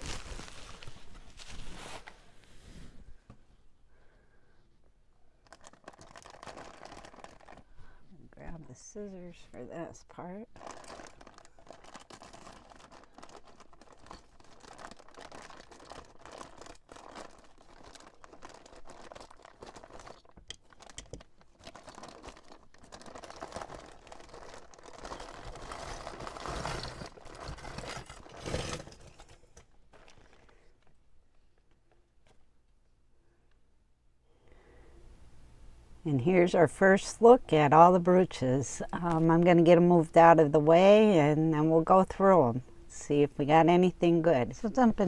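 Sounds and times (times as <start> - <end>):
packaging crinkling and tearing: 0.0 - 2.1, 5.4 - 7.7, 10.5 - 30.7.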